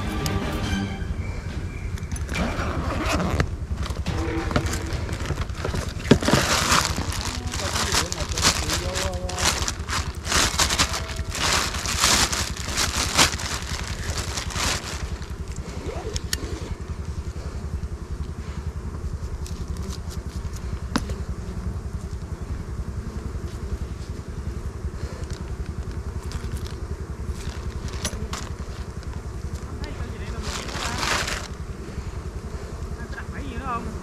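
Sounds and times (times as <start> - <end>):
engine running steadily: 0.0 - 34.0
crackling and rustling: 2.0 - 17.1, 25.0 - 31.7.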